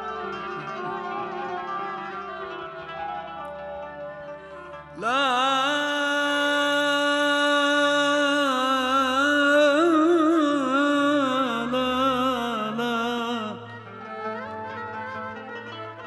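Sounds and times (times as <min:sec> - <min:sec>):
man singing long vowel: 0:05.0 - 0:14.0.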